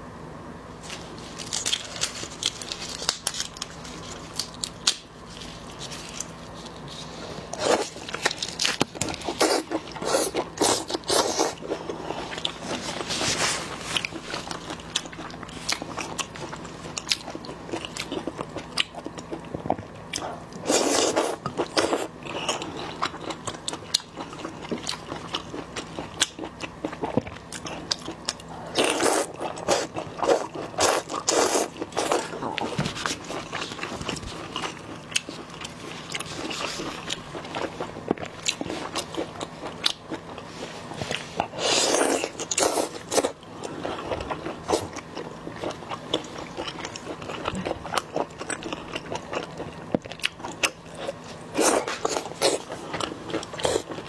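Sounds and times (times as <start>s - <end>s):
crunchy chewing: 0.8s - 54.0s.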